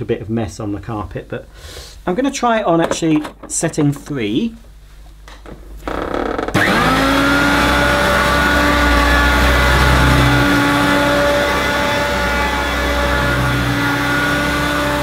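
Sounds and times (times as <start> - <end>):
vacuum cleaner motor whining: 6.5 - 15.0.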